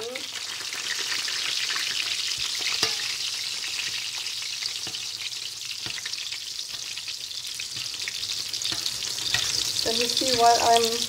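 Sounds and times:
oil sizzling in a pan: 0:00.0 - 0:11.0
spoon clicking against pan: 0:08.6 - 0:09.6.

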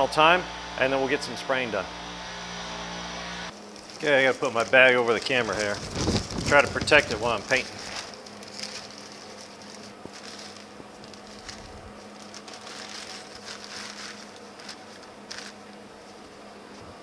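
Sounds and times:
plastic bag rustling and crinkling: 0:03.5 - 0:17.0.

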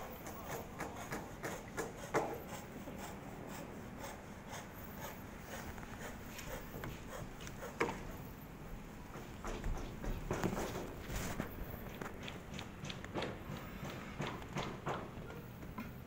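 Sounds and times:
faint knocks and rubbing: 0:05.6 - 0:08.2, 0:09.1 - 0:16.0
sharp knocks: 0:12.2 - 0:15.9.

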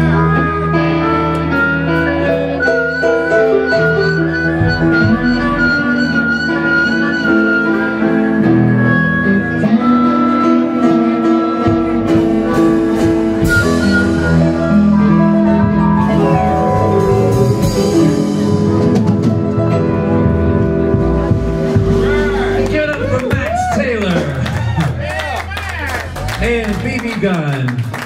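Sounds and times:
harmonica: 0:00.0 - 0:21.2
electric guitar: 0:00.0 - 0:26.9
keyboard: 0:00.0 - 0:27.8
drums: 0:00.0 - 0:28.0
upright bass: 0:00.0 - 0:28.0.

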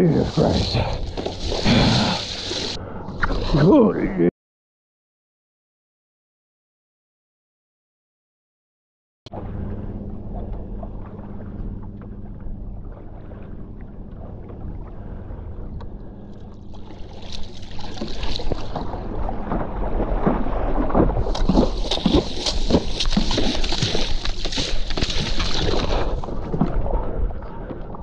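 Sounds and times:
paddle strokes and water splashing: 0:00.0 - 0:03.8, 0:09.3 - 0:28.0
low steady hum: 0:09.3 - 0:28.0.

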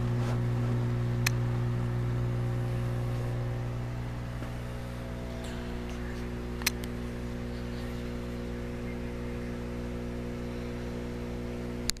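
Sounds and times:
electrical hum and buzz: 0:00.0 - 0:12.0
sharp click: 0:06.6 - 0:07.0.

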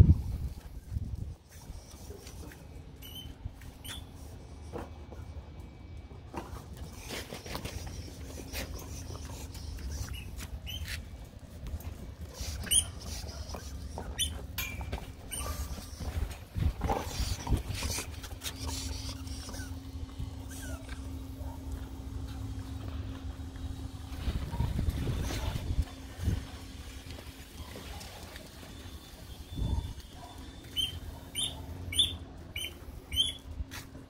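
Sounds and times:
dogs playing: 0:00.1 - 0:34.0
clicks and brief squeaks: 0:03.0 - 0:04.2
steady low rumble: 0:15.7 - 0:27.6.

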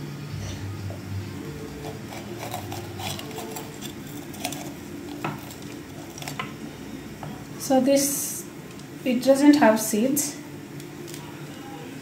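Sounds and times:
faint steady hum: 0:00.0 - 0:12.0
knife cutting pepper: 0:01.8 - 0:06.5.

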